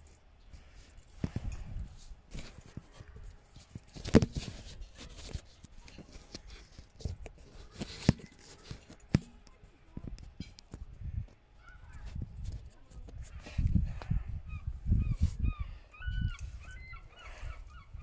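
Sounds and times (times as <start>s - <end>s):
rustling: 0.0s - 13.6s.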